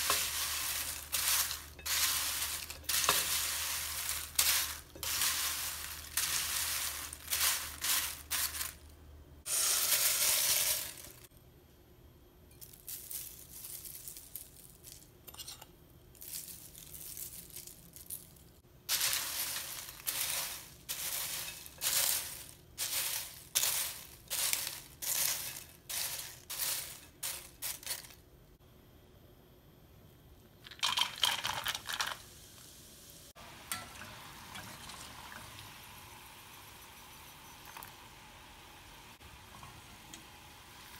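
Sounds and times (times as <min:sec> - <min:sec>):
corn flakes tossed in glass bowl: 0:00.0 - 0:08.8, 0:09.5 - 0:11.3, 0:12.6 - 0:15.2, 0:16.1 - 0:28.2
hot oil sizzling: 0:00.0 - 0:08.8, 0:09.4 - 0:11.3, 0:18.8 - 0:28.1, 0:30.7 - 0:40.9.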